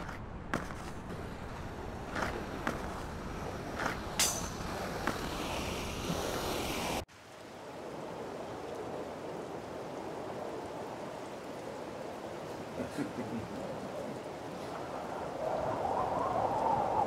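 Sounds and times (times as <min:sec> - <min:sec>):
skate wheels rolling on pavement: 0:00.0 - 0:07.0
outdoor hiss: 0:00.9 - 0:14.6.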